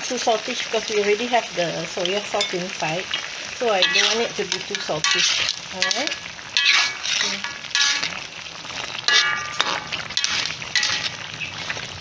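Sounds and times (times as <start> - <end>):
braise bubbling and sizzling: 0.0 - 12.0
spoon scraping metal pan: 2.4 - 11.8.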